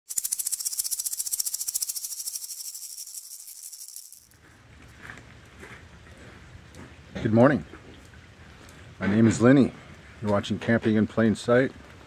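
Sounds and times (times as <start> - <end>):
shaker rattling: 0.0 - 4.4.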